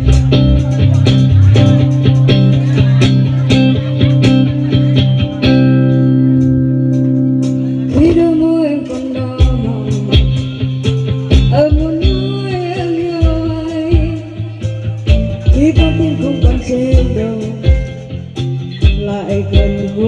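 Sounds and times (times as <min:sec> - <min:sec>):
live band with keyboards: 0:00.0 - 0:20.0
steady drum beat: 0:00.0 - 0:20.0
woman singing pop ballad: 0:07.8 - 0:10.5, 0:11.5 - 0:14.6, 0:15.4 - 0:18.0, 0:18.8 - 0:20.0.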